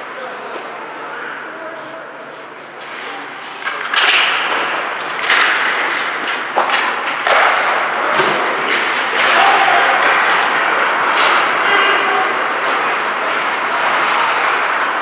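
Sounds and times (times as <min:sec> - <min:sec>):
skate blades scraping ice: 0:02.2 - 0:08.0
hockey stick clack: 0:02.8 - 0:11.8
stick knocking puck: 0:03.7 - 0:09.4.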